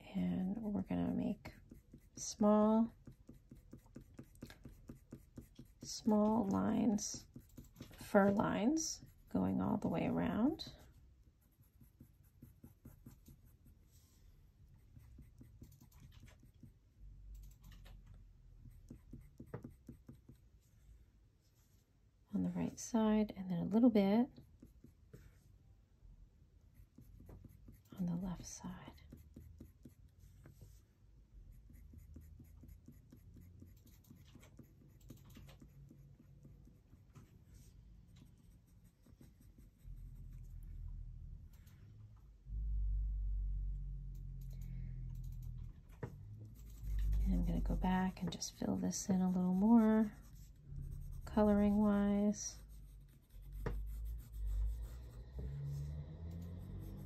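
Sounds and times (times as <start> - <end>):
low steady hum: 0.0 - 57.0
pencil scratching on paper: 0.4 - 16.8, 18.6 - 20.7, 26.8 - 30.8, 31.5 - 40.8, 45.3 - 57.0.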